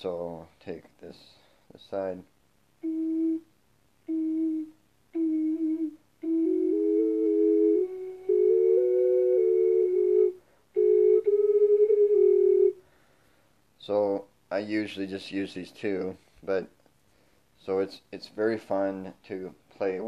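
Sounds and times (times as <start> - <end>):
ocarina melody over drone: 4.1 - 12.8.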